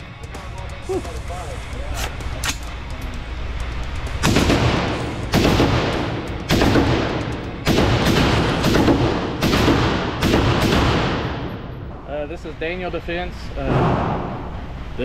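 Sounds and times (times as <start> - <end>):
rifle shots echoing indoors: 4.2 - 11.9.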